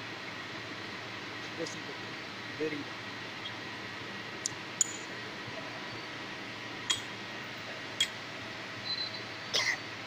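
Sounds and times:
metallic clicks of steel parts: 0:04.4 - 0:05.1.

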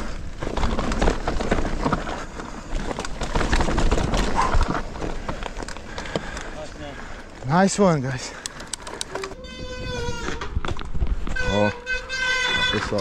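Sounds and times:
bike clattering over bumps: 0:00.0 - 0:07.5
wind rumble on microphone: 0:09.3 - 0:11.8.

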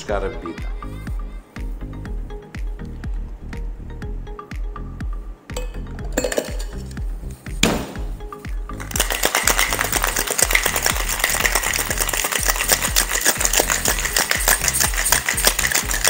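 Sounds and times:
ice rattling in cocktail shaker: 0:06.2 - 0:06.9, 0:08.8 - 0:16.0.

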